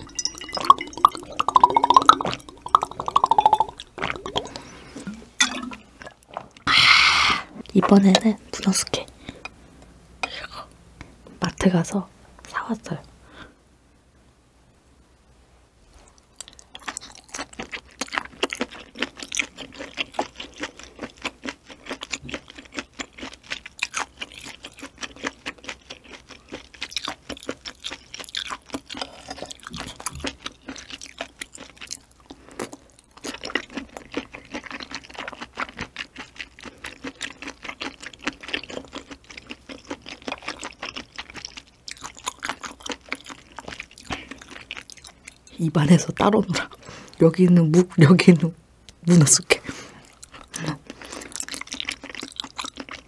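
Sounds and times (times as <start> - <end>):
chewing mouth sounds: 0.0 - 7.8, 16.1 - 45.6, 50.0 - 53.0.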